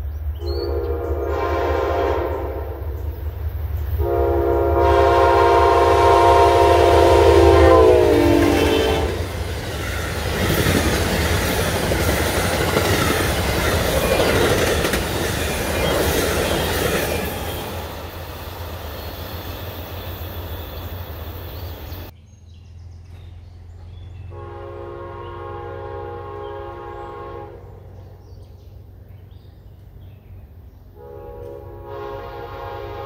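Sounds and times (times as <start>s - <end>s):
train horn chord: 0.4s - 3.0s, 4.0s - 9.4s, 24.3s - 28.1s, 31.0s - 33.0s
train wheels clattering on rails: 9.2s - 20.9s.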